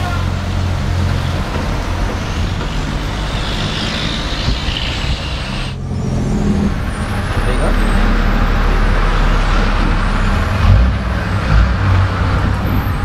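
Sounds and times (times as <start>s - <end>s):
road traffic noise: 0.0s - 13.0s
truck diesel engine droning: 0.0s - 13.0s
tyre hiss of passing car: 2.8s - 5.8s.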